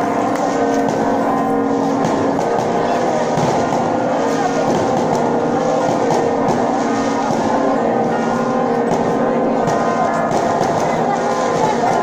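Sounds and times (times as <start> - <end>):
crowd din: 0.0 - 12.0
long-held tones: 0.0 - 12.0.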